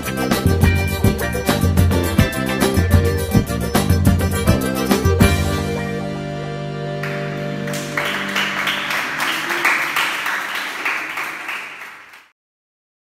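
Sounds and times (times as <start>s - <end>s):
song's last chord ringing out: 4.2s - 9.0s
audience clapping: 7.0s - 12.4s.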